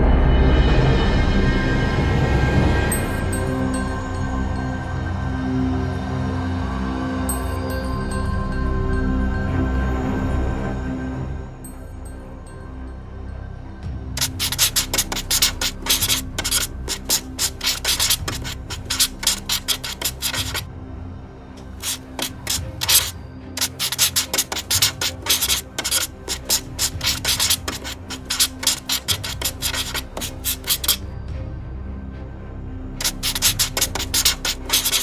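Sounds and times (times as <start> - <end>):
felt pen scratching on paper: 14.2 - 20.6, 21.7 - 31.0, 33.0 - 35.0.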